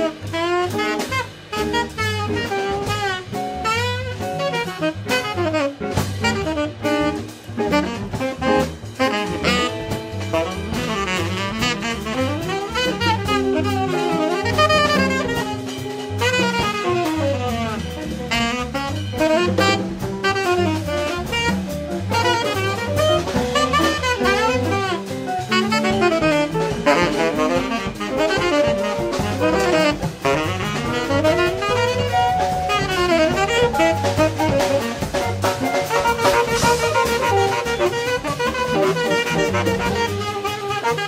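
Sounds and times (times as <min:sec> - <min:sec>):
bass line: 0:00.0 - 0:41.0
drum kit: 0:00.0 - 0:41.0
tenor saxophone jazz solo: 0:00.0 - 0:41.0.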